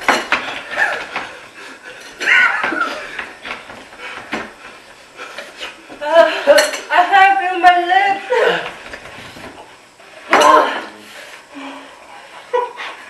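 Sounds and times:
voices: 6.0s - 8.7s.

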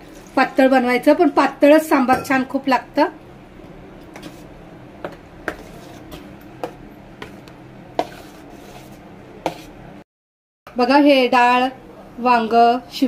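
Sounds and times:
ladle clinking against pot: 2.1s - 2.4s.

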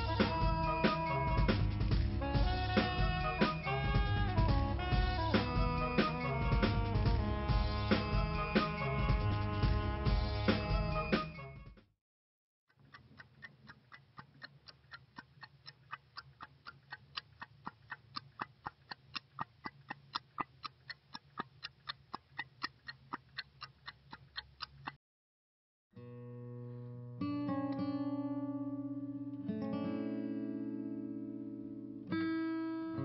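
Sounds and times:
clock ticking quickly: 0.0s - 7.3s, 12.7s - 25.0s.

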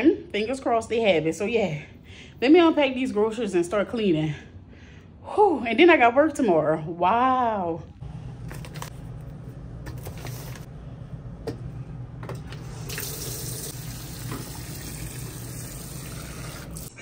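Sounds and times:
water rushing into washing machine: 12.2s - 17.0s.

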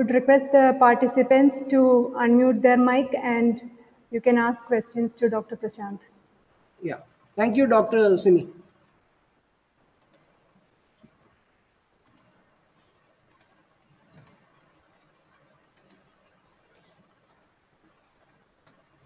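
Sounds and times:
computer mouse clicks: 10.0s - 11.3s, 12.0s - 17.4s.

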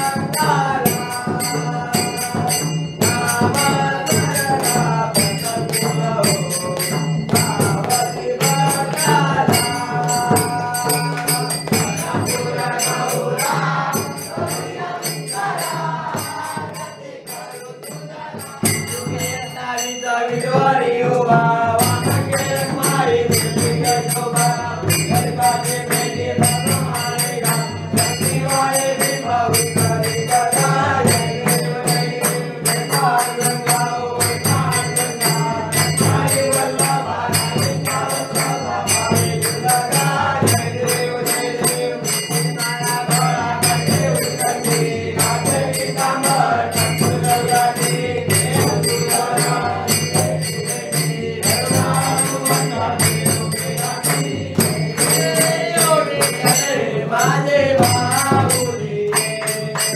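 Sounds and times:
men singing in unison: 0.0s - 59.9s
hand clapping: 6.3s - 12.5s, 37.6s - 40.2s, 51.6s - 56.6s, 58.0s - 59.9s.

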